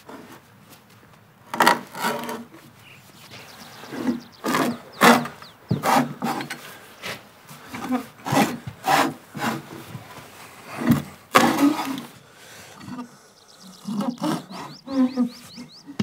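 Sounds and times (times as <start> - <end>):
hand auger grinding wood: 1.5 - 2.7, 3.3 - 12.2, 13.8 - 15.8.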